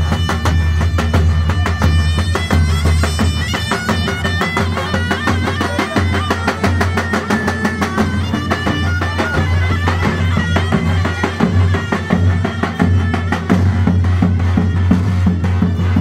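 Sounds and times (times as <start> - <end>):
davul drum beats: 0.0 - 16.0
zurna melody: 0.0 - 16.0.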